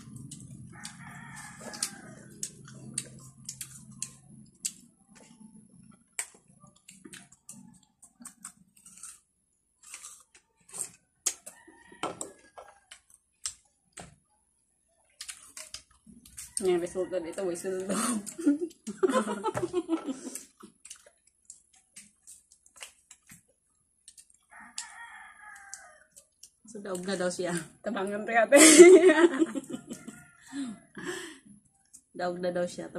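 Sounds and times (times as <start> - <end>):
crunchy bites and wet chewing: 0.1 - 14.2, 15.1 - 16.6, 20.4 - 26.7
rooster crowing: 0.7 - 2.8, 11.4 - 12.9, 24.5 - 26.2, 29.5 - 31.1.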